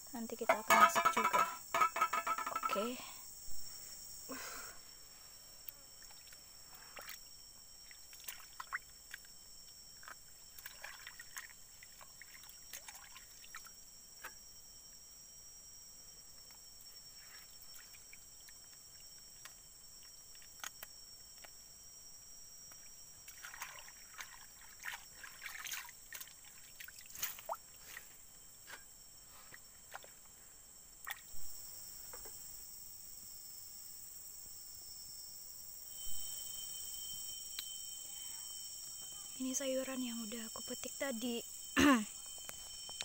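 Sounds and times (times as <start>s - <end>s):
high insect buzz: 0.0s - 43.0s
water splashing as greens are rinsed: 7.8s - 9.3s, 10.0s - 13.7s, 22.7s - 28.1s.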